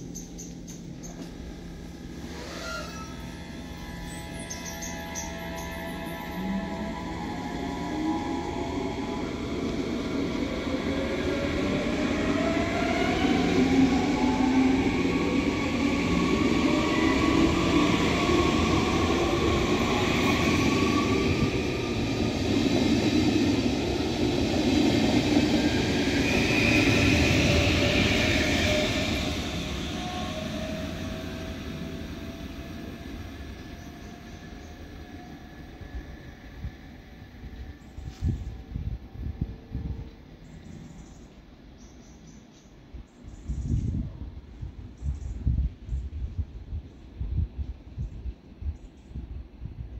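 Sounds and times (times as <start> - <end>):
train wheels rumbling: 0.0 - 39.6
electric train whine: 0.0 - 41.6.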